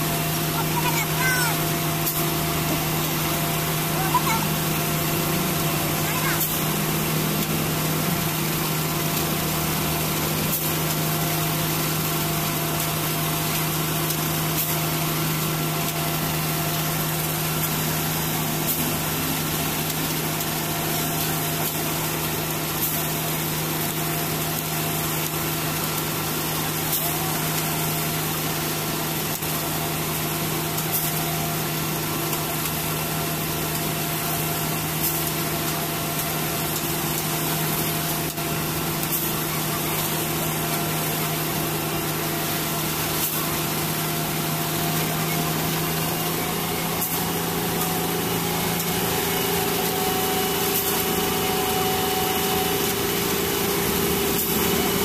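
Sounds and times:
concrete mixer truck humming: 0:00.0 - 0:55.0.

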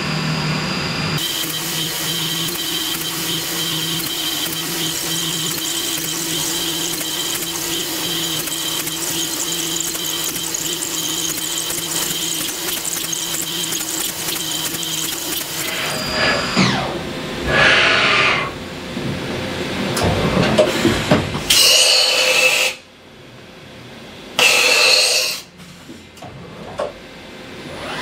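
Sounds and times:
milling machine spindle whine: 0:00.0 - 0:18.6
spindle winding down: 0:01.2 - 0:16.9.

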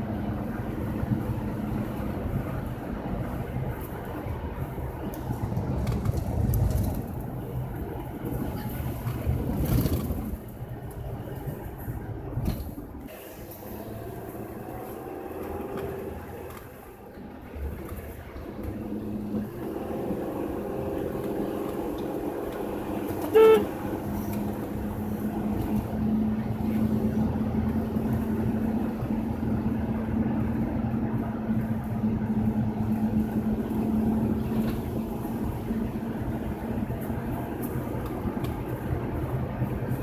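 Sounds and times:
car engine and road noise: 0:00.0 - 0:40.0
car horn toot: 0:23.2 - 0:24.0.

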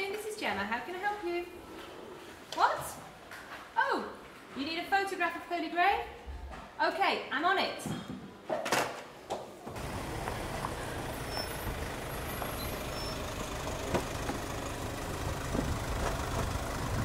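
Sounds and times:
van engine idling: 0:09.7 - 0:17.0.

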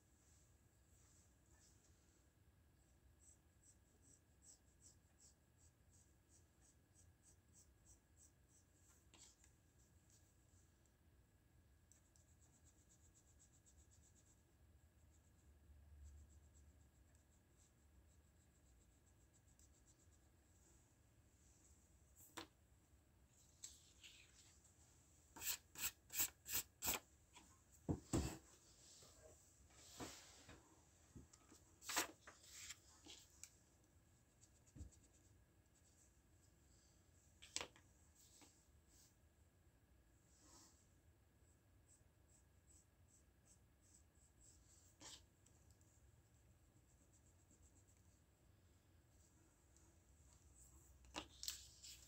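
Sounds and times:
pencil scratching on paper: 0:03.2 - 0:09.4, 0:25.4 - 0:27.0
paper rustling: 0:31.8 - 0:33.4.

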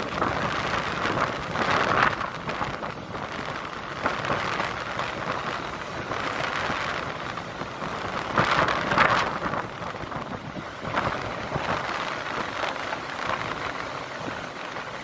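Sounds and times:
train running on track: 0:00.0 - 0:15.0
wind rushing past microphone: 0:00.0 - 0:15.0.

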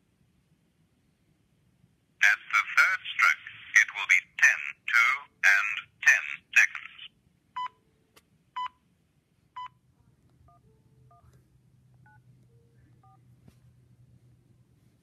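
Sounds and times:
touch-tone keypad beeps: 0:12.1 - 0:13.2.

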